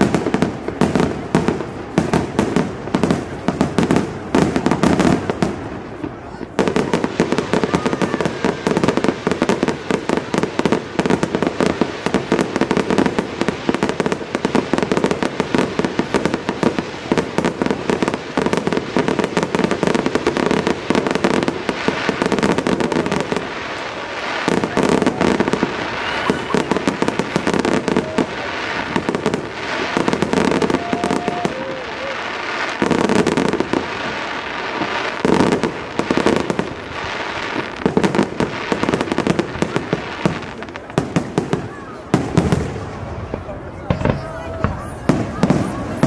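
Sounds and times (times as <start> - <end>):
fireworks bangs: 0.0 - 46.0.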